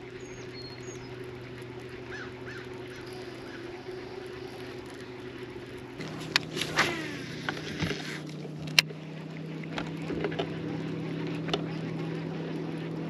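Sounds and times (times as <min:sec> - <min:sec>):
electric motor hum: 0:00.0 - 0:13.0
faint bird calls: 0:02.0 - 0:08.3.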